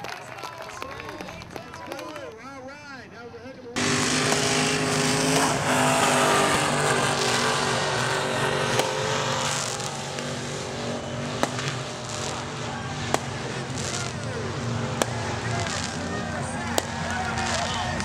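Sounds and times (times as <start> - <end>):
buggy engine running hard: 3.8 - 18.0
firework cracks: 8.7 - 10.4, 11.4 - 18.0.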